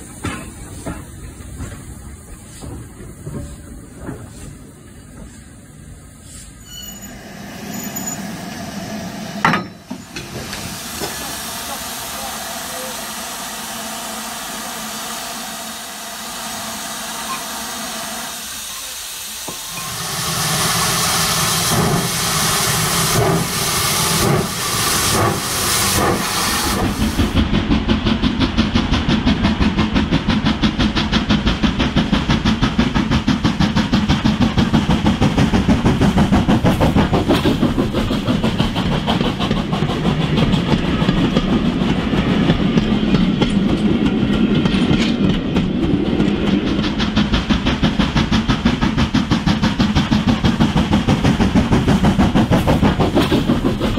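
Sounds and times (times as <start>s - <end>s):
rail clatter: 0.0s - 5.6s, 20.8s - 53.9s
steam hissing: 0.0s - 27.5s, 28.2s - 44.7s, 45.8s - 53.9s
model locomotive chuffing: 6.9s - 53.9s.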